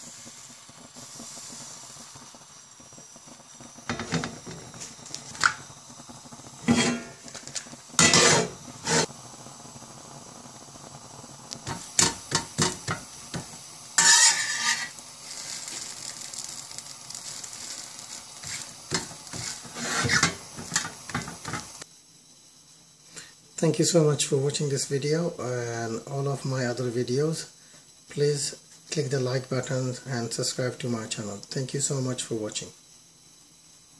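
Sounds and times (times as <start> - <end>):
frying sizzle: 0.0 - 33.9
utensils scraping a metal pan: 6.6 - 7.2, 8.0 - 9.1, 14.0 - 15.8, 18.4 - 20.9.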